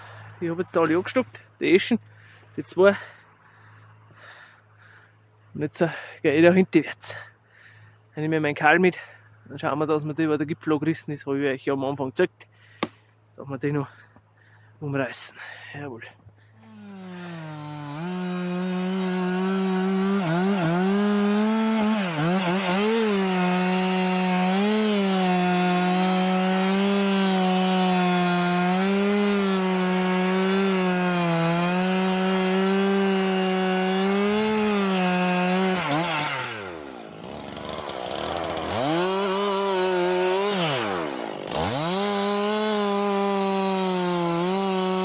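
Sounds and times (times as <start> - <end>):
chainsaw cutting tree: 16.6 - 45.0.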